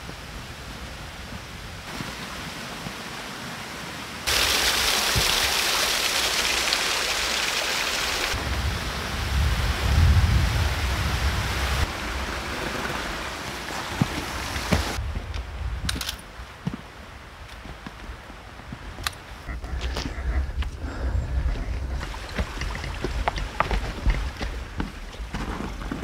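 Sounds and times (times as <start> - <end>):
rushing outdoor noise: 0.0 - 26.0
low rumble: 19.4 - 24.9.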